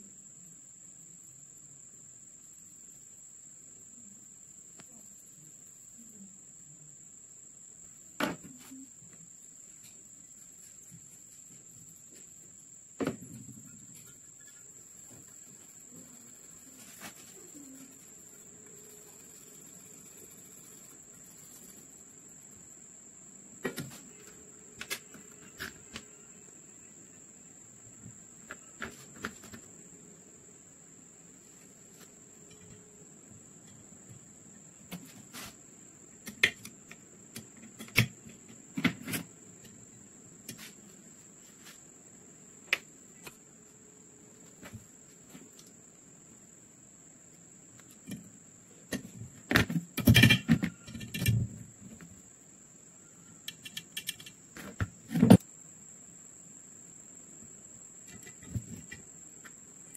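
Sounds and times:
steady high-pitched whine: 0:00.0 - 0:53.6
small metal parts clicking: 0:53.5 - 0:54.4.

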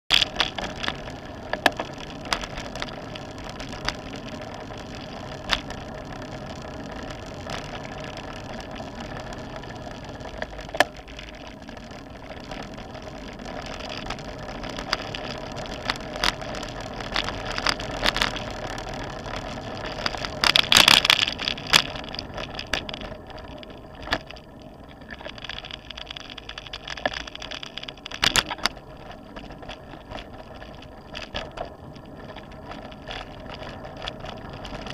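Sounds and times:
bicycle tyre and wind noise: 0:00.1 - 0:34.9
bike rattling over bumps: 0:00.1 - 0:34.9.

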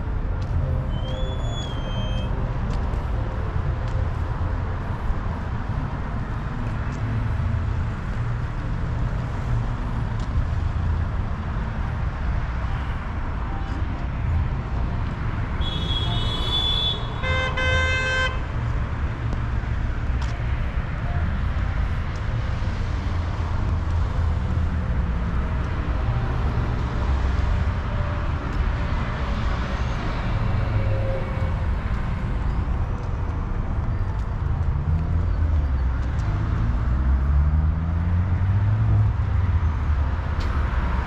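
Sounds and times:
street traffic rumble: 0:00.0 - 0:41.0
vehicle horn toot: 0:15.6 - 0:18.4.

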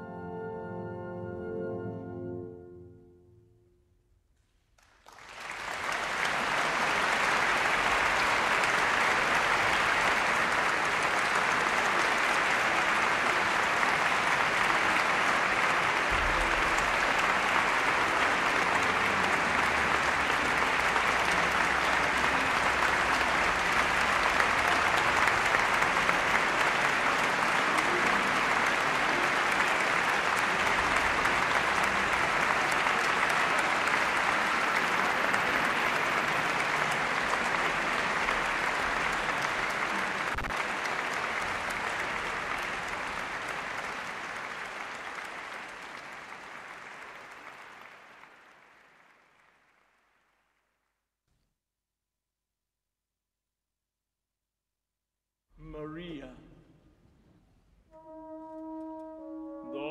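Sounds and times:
audience applauding: 0:04.8 - 0:50.6.

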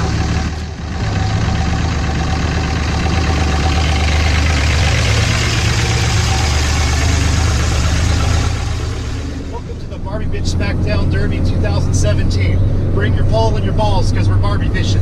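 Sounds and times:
truck engine idling: 0:00.0 - 0:15.0.

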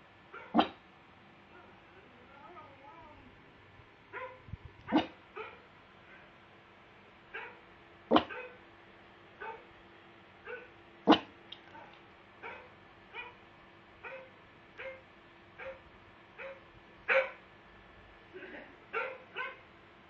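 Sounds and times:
dog barking: 0:00.3 - 0:00.8, 0:04.1 - 0:05.7, 0:07.3 - 0:08.6, 0:09.4 - 0:09.7, 0:10.4 - 0:11.3, 0:12.4 - 0:13.4, 0:14.0 - 0:15.0, 0:15.6 - 0:17.4, 0:18.9 - 0:19.7.

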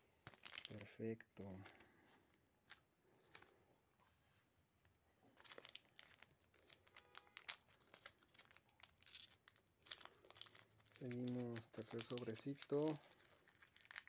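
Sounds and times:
foil wrapper crinkling and tearing: 0:00.2 - 0:00.8, 0:05.4 - 0:14.0.

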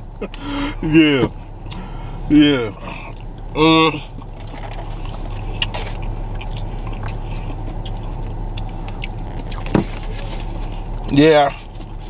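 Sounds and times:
low car cabin hum: 0:00.0 - 0:12.0
chewing: 0:02.8 - 0:12.0.

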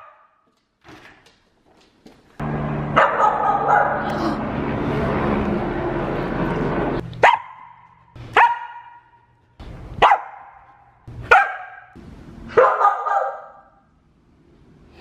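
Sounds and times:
dog barking: 0:03.0 - 0:04.1, 0:07.2 - 0:09.2, 0:10.0 - 0:10.7, 0:11.3 - 0:13.7.

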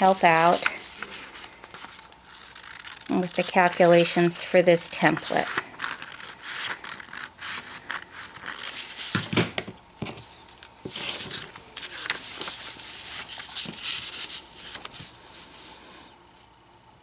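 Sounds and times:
paper sheets rustling: 0:00.0 - 0:09.4, 0:10.0 - 0:15.6.

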